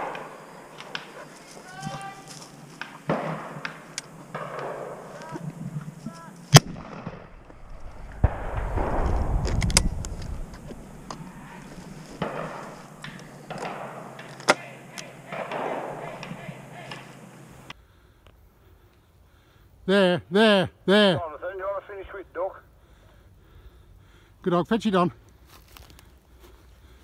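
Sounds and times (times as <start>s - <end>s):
shotgun shots: 2.7s - 5.2s, 6.5s - 7.4s, 8.2s - 17.4s.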